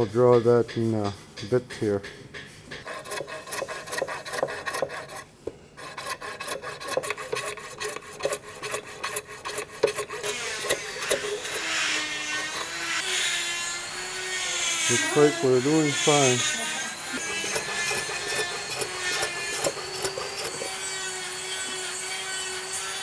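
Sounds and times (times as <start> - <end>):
saw cutting strokes: 2.7 - 23.0.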